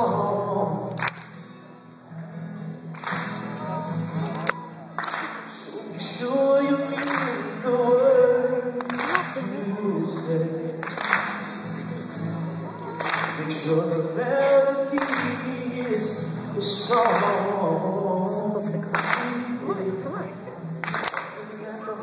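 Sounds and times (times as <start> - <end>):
man singing: 0.0 - 1.1, 5.3 - 11.4, 12.8 - 22.0
acoustic guitar strumming: 0.0 - 22.0.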